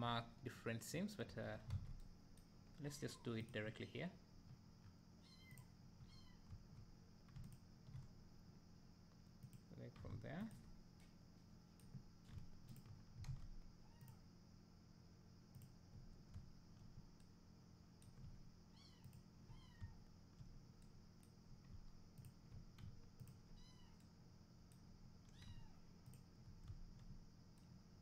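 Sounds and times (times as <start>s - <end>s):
computer mouse clicks: 4.5s - 8.1s, 11.8s - 14.2s, 15.5s - 17.3s, 18.0s - 24.1s, 24.7s - 27.7s.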